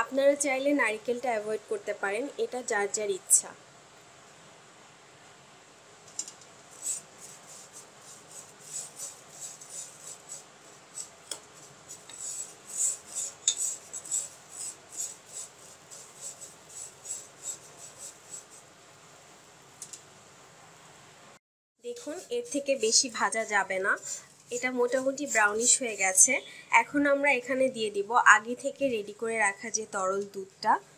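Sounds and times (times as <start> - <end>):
wooden spoon scraping pan: 6.8 - 18.6, 21.9 - 26.5.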